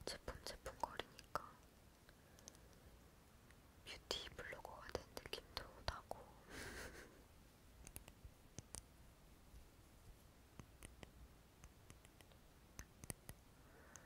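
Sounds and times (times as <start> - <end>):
faint small clicks: 0.8 - 3.6, 7.8 - 8.9, 10.6 - 14.0.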